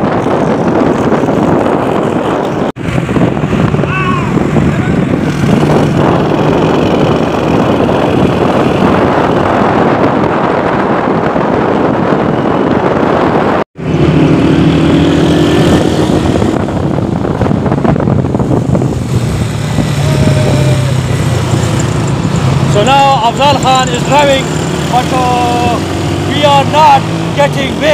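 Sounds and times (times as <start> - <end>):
motorcycle engine humming: 0.0 - 27.9
wind rushing over microphone: 0.0 - 27.9.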